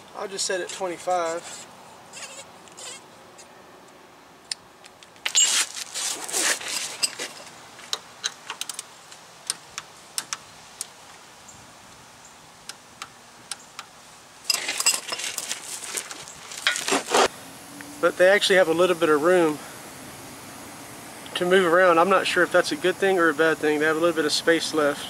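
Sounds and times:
metal rattle: 5.2s - 8.9s, 14.5s - 17.3s.

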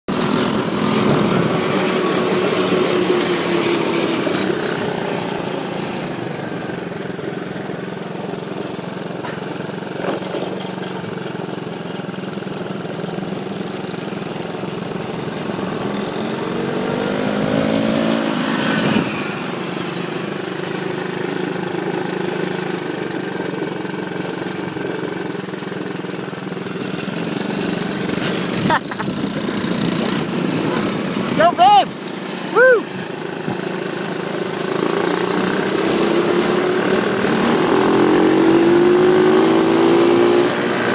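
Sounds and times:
small engine running and revving: 0.1s - 40.9s.

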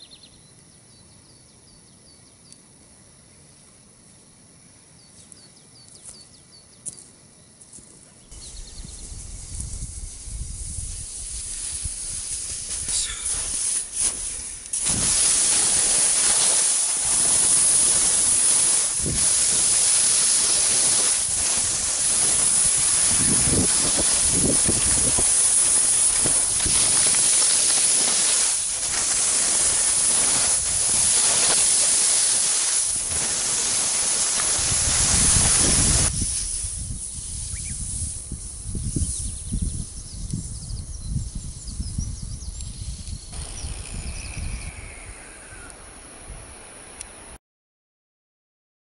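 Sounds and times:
skis scraping over snow: 9.0s - 36.1s.

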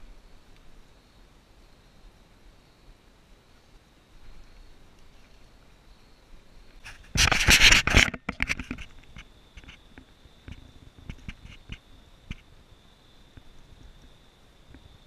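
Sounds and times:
camera scraping in dry leaves: 6.8s - 9.8s
light taps and rustles: 6.8s - 12.5s.

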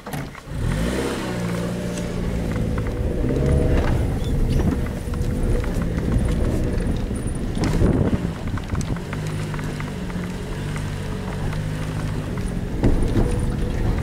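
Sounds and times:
car engine humming: 0.0s - 14.0s
tyres rumbling on dirt track: 0.0s - 14.0s
suspension knock: 2.0s - 14.0s.

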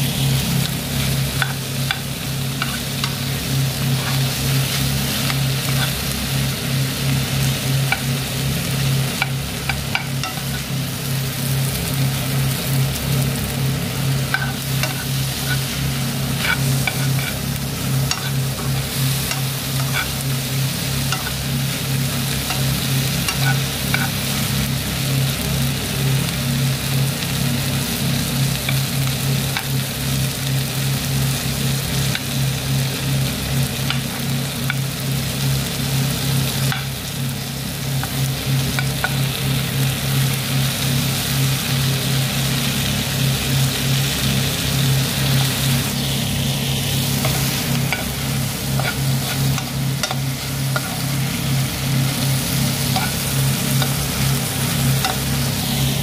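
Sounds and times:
steady low hum: 0.0s - 56.0s
vegetables sizzling in a frying pan: 0.0s - 56.0s
metal spoon scraping a pan: 1.3s - 3.2s, 3.8s - 6.0s, 14.3s - 20.4s, 21.1s - 21.4s, 22.4s - 24.2s, 47.2s - 51.1s, 52.8s - 54.0s.

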